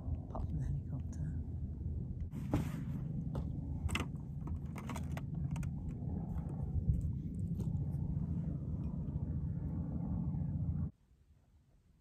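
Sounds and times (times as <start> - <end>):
handling clicks and rustles: 2.2 - 9.0.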